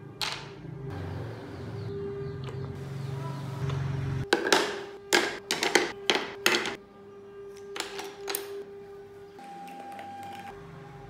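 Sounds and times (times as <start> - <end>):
wooden parts knocking and scraping: 4.3 - 6.8.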